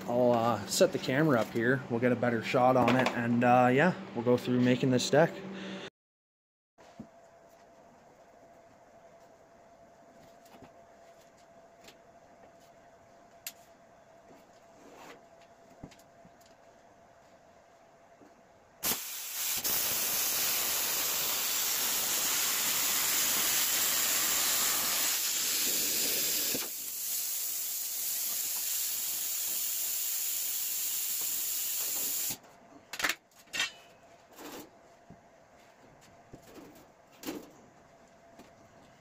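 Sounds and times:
plasma cutter hissing: 18.8 - 32.4.

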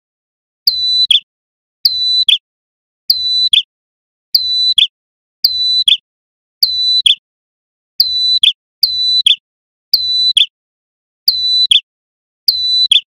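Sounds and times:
bird singing high call: 0.6 - 2.4, 3.1 - 3.7, 4.3 - 6.0, 6.6 - 7.2, 8.0 - 10.6, 11.3 - 11.9, 12.5 - 13.0.

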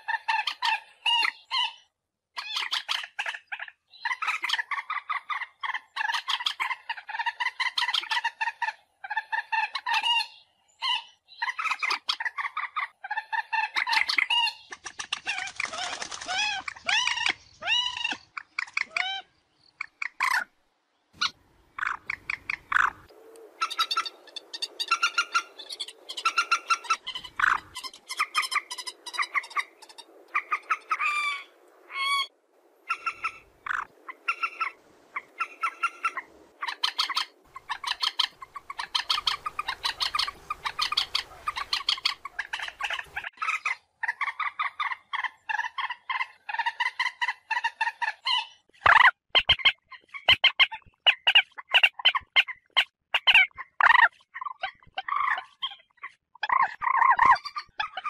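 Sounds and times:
moorhen calling: 21.2 - 58.0.

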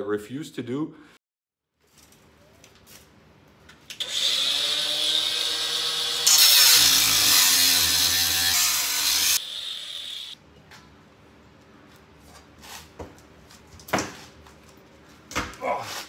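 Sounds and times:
angle grinder cutting sheet metal: 4.0 - 10.4.

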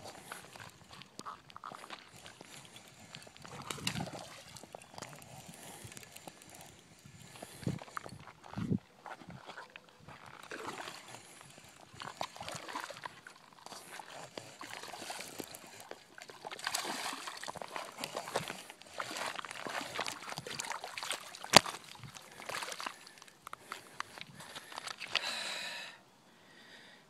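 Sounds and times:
water splashing over stones: 12.2 - 23.4.

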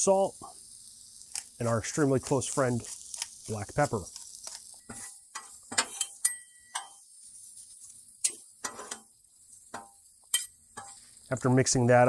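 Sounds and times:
onions sizzling on griddle: 0.0 - 12.0
pepper grinder ratcheting clicks: 1.3 - 1.6, 2.2 - 4.8
metal spatulas scraping griddle: 4.9 - 7.0, 7.8 - 11.1.

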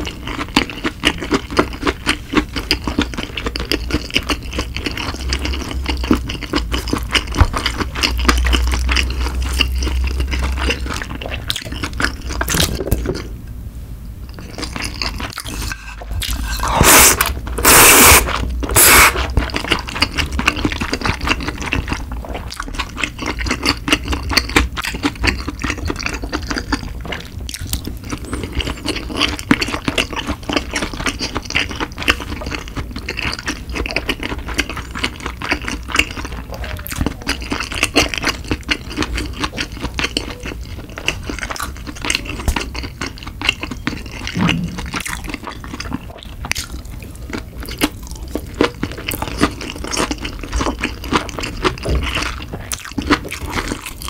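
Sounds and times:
wet chewing mouth clicks: 27.5 - 54.0.

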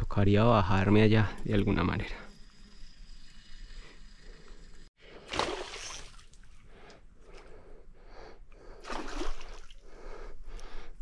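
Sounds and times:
person gasping breaths: 9.6 - 11.0.

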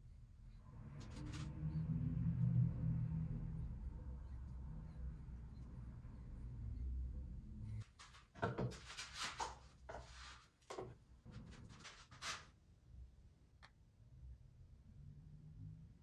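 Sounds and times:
rustles and scuffs: 7.8 - 10.8.

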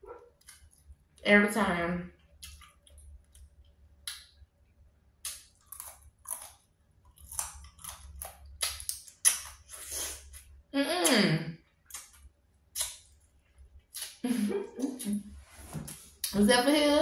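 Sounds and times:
sucking and chewing crawfish: 5.2 - 10.6.

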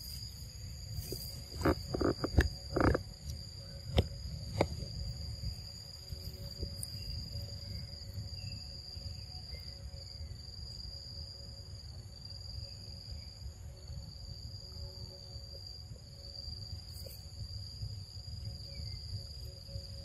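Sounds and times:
forest insects droning: 0.0 - 20.0.

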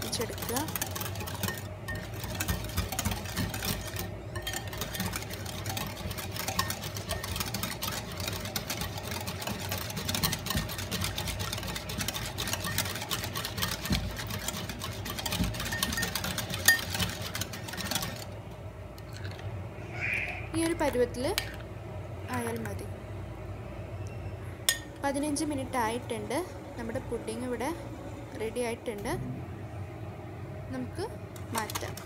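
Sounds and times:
whisk clicking against bowl: 0.0 - 18.4, 31.4 - 32.0.

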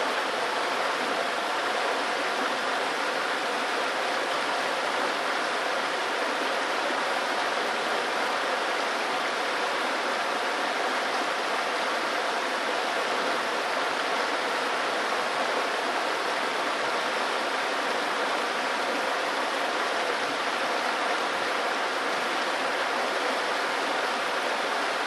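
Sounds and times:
water rushing over rocks: 0.0 - 25.0.

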